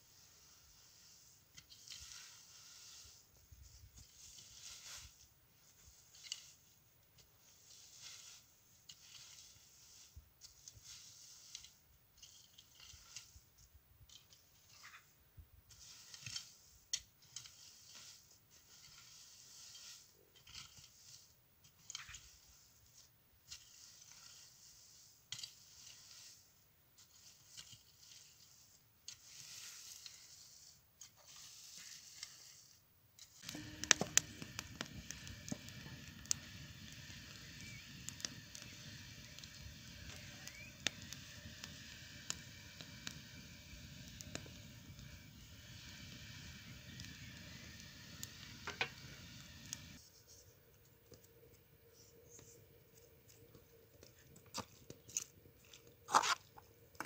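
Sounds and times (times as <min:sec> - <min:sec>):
rake scraping through dry leaves: 0:00.0 - 0:51.3, 0:52.0 - 0:57.0
wood fire crackling and popping: 0:33.4 - 0:50.0, 0:52.4 - 0:57.0.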